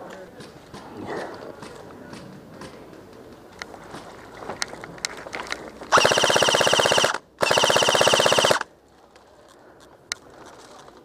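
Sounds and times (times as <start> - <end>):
airsoft rifle full-auto bursts: 5.9 - 8.7.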